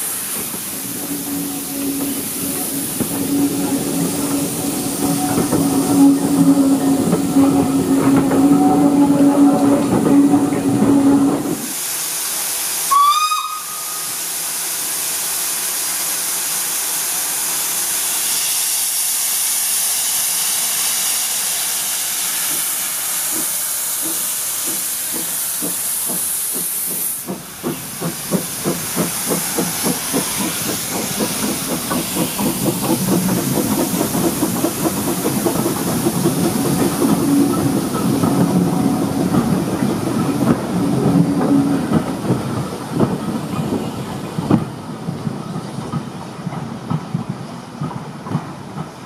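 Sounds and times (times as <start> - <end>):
loud hiss of steam: 0.0 - 49.0
steam whistle toot: 12.8 - 14.3.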